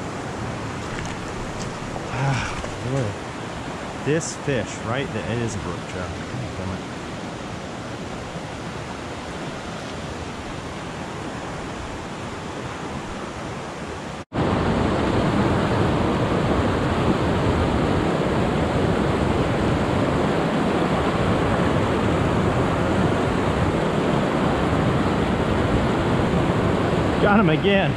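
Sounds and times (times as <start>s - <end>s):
water rushing over rocks: 0.0s - 13.2s.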